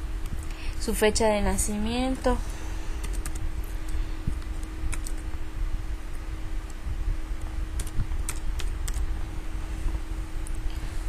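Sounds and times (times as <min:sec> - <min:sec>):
steady low hum: 0:00.0 - 0:11.0
computer keyboard keystrokes: 0:03.0 - 0:03.4, 0:04.3 - 0:05.3, 0:07.7 - 0:09.0.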